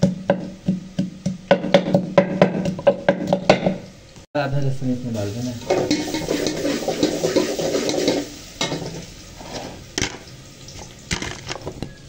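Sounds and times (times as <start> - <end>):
pestle pounding in wooden mortar: 0.0 - 3.8
oil sizzling in a pot: 0.0 - 4.1, 4.8 - 12.0.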